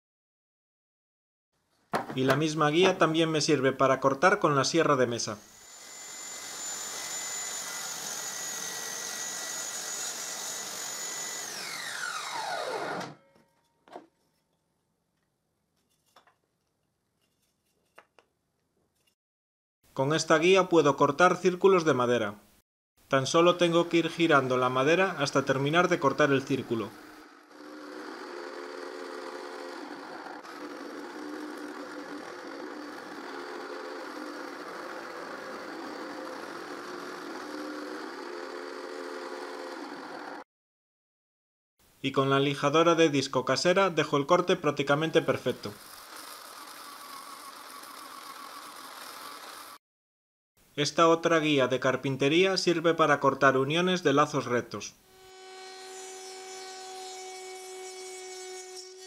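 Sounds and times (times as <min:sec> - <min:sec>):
knock: 0:01.9 - 0:02.4
bandsaw motor hum: 0:05.4 - 0:13.2, 0:24.4 - 0:40.4, 0:45.6 - 0:49.8, 0:55.1 - 0:59.0
table saw whining: 0:05.4 - 0:13.6, 0:23.9 - 0:40.4, 0:44.9 - 0:49.8, 0:55.0 - 0:59.0.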